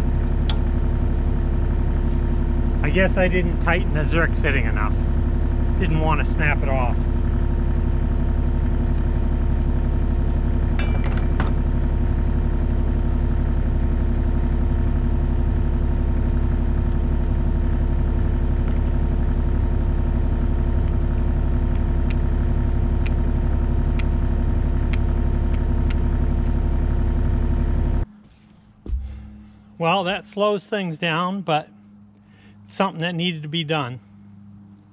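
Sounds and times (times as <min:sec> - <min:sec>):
diesel engine idling: 0:00.0 - 0:28.1, 0:28.9 - 0:34.9
wrench clinking on metal: 0:10.8 - 0:11.5.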